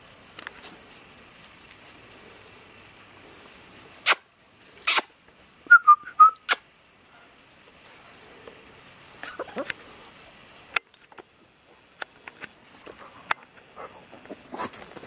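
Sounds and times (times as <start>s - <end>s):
puppies play-fighting: 9.1s - 10.1s.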